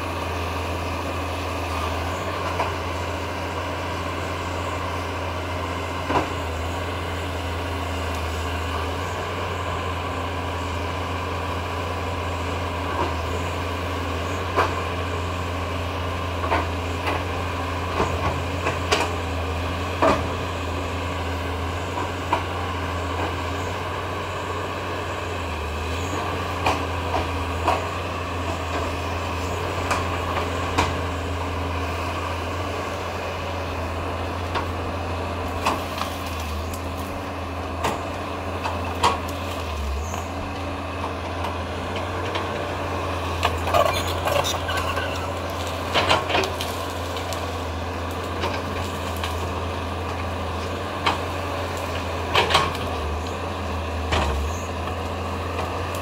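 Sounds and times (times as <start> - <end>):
excavator diesel engine running: 0.0 - 56.0
wood and debris cracking: 35.3 - 40.4, 43.3 - 56.0.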